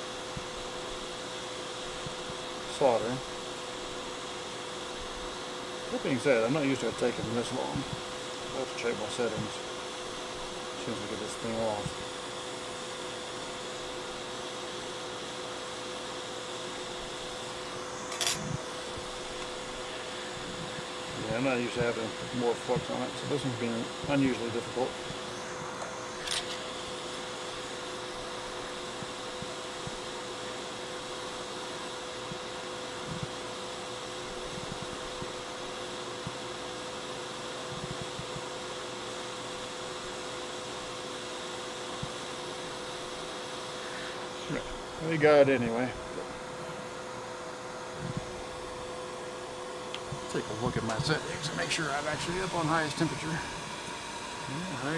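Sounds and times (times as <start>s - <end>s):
low steady hum: 0.0s - 36.7s
hot air station blowing: 0.0s - 54.9s.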